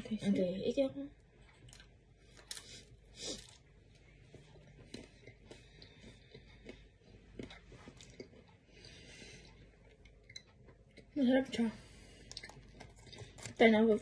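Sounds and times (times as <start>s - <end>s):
mouth clicks and chewing: 4.7s - 11.1s, 12.2s - 13.6s
soft breath: 8.6s - 9.7s, 11.6s - 12.3s.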